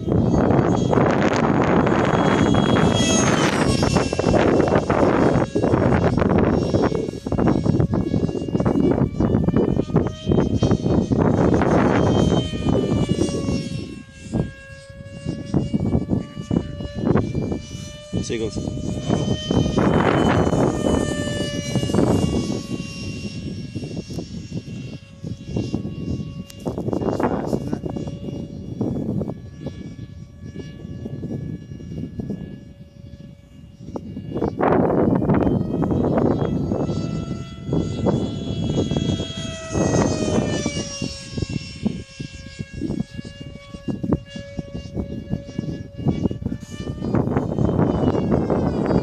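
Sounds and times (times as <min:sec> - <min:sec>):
model aircraft motor whining: 0:00.0 - 0:49.0
wind rumbling on microphone: 0:00.0 - 0:49.0.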